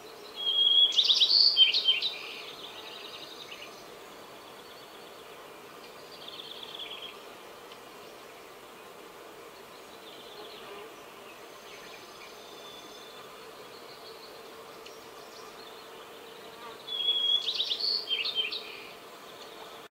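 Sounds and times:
sparrow singing: 0.4 - 3.8, 16.6 - 18.9.

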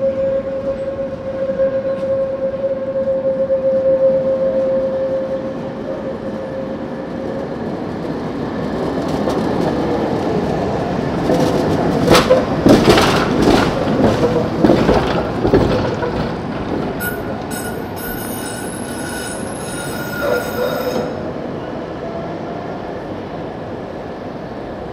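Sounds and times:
tram whine: 0.0 - 24.9
wheel clatter over rail joints: 10.9 - 20.6
high-pitched wheel squeal: 17.0 - 21.2.

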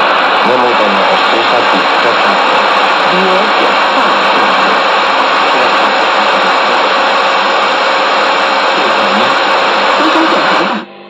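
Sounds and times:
radio static hiss: 0.0 - 10.9.

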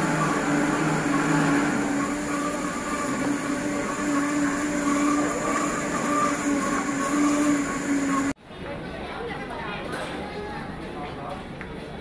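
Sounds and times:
blenders running: 0.0 - 8.4.

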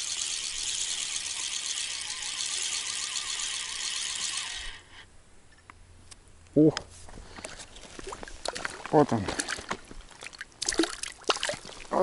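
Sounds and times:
fishing reel whirring: 0.0 - 5.1.

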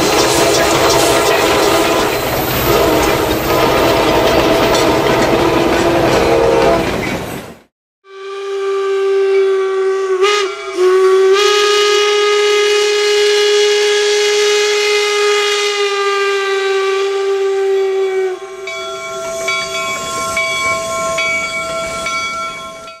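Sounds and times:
steam hissing: 0.0 - 5.0
steam locomotive whistle: 0.0 - 7.0, 8.0 - 23.0.

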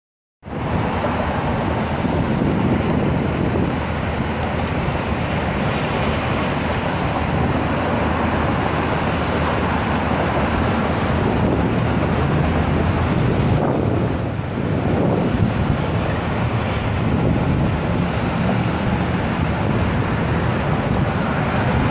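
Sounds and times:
traffic rumbling: 0.4 - 21.9
wind noise: 0.4 - 21.9.

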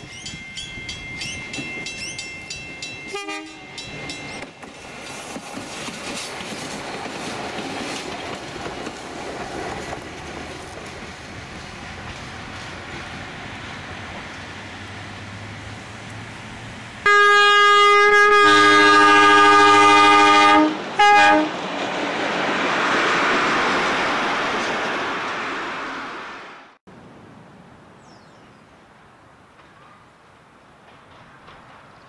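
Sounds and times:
diesel railcar engine drone: 0.0 - 26.8
railcar passing rush: 0.0 - 27.8, 28.7 - 32.0
train horn: 3.1 - 3.8, 17.0 - 21.6.

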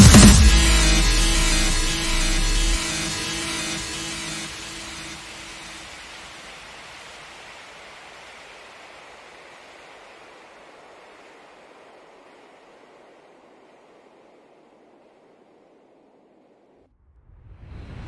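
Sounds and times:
small waves washing on beach: 3.2 - 16.7.

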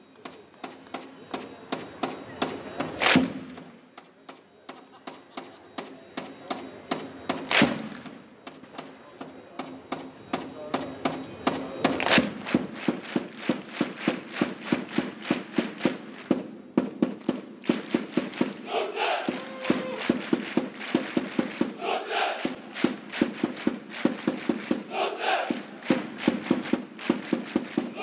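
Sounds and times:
crowd clapping in unison: 12.0 - 28.0
scattered voices: 18.6 - 20.1, 21.7 - 22.9, 24.8 - 26.0.

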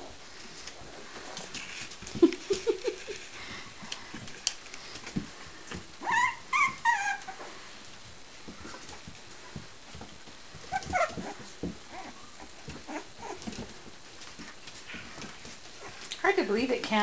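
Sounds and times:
puppies growling: 0.4 - 7.8, 8.5 - 16.1
puppies yipping: 6.0 - 7.4, 10.6 - 13.7.

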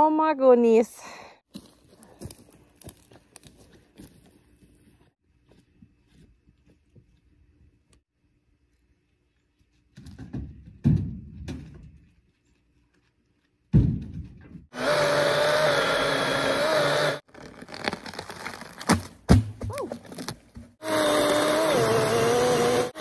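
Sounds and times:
electric chainsaw whine: 14.7 - 17.2, 20.8 - 23.0.

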